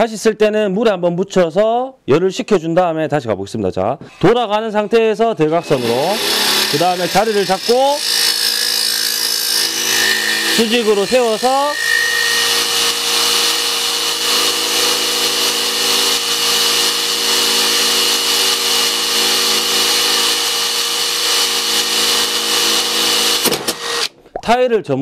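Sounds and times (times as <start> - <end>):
power tool motor whine: 5.4 - 24.1
diamond bit grinding tile: 5.6 - 20.4.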